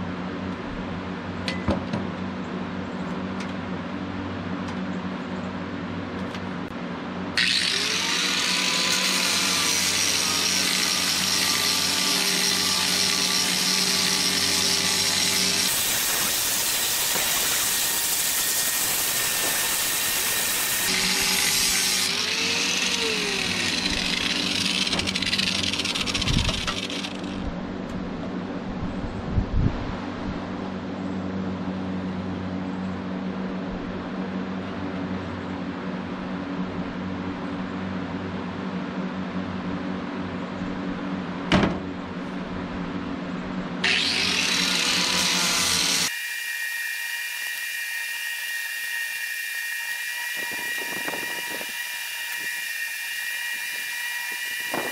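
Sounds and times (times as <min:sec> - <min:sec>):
angle grinder grinding wood: 0:07.4 - 0:27.5, 0:43.8 - 0:54.9.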